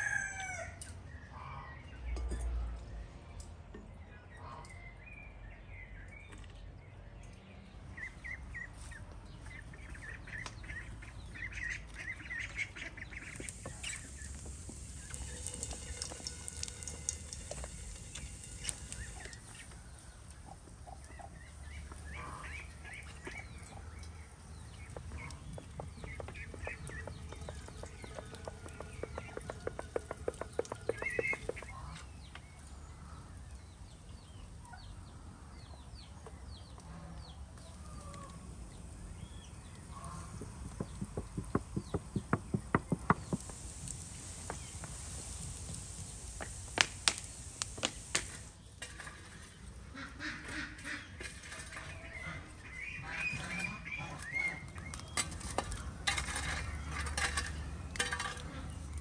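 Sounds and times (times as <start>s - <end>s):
ducks and chickens calling: 8.0s - 24.1s, 24.7s - 32.3s, 49.8s - 55.2s
bird hissing: 13.3s - 19.7s, 43.1s - 48.6s.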